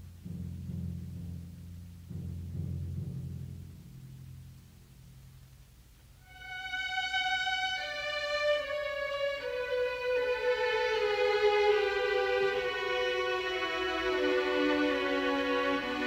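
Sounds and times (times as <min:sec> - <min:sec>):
violin slow held notes: 0:06.2 - 0:16.0.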